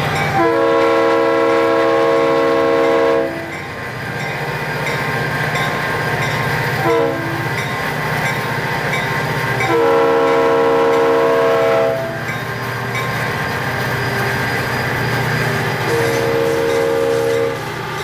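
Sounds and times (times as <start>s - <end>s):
moving train rumble: 0.0s - 18.0s
locomotive air horn: 0.3s - 3.5s, 6.8s - 7.5s, 9.6s - 12.2s, 15.8s - 17.8s.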